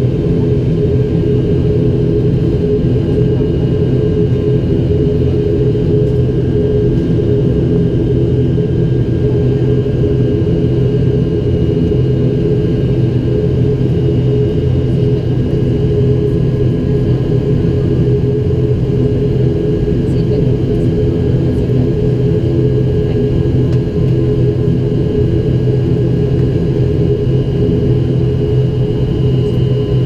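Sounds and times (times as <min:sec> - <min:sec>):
turboprop engines droning: 0:00.0 - 0:30.0.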